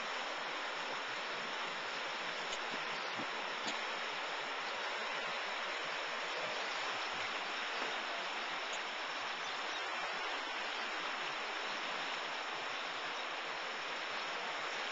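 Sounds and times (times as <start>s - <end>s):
water rushing over rocks: 0.0s - 14.9s.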